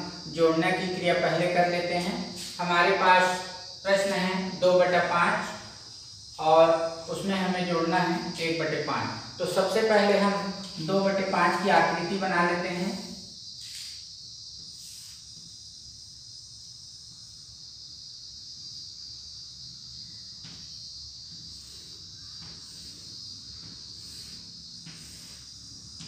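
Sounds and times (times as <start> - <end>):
crickets trilling: 0.0 - 26.0
chalk scraping on blackboard: 14.6 - 15.3, 21.3 - 26.0.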